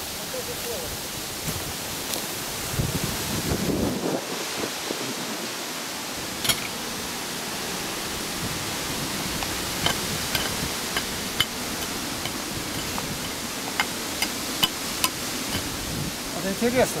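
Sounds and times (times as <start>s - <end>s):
steady hissing noise: 0.0s - 17.0s
wire clicking and scraping in soil: 6.4s - 6.8s, 9.3s - 15.9s.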